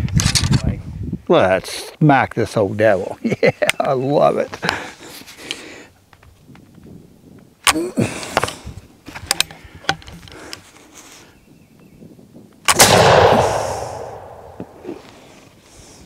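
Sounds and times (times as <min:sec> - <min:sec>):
gunshot boom: 0:12.7 - 0:15.0.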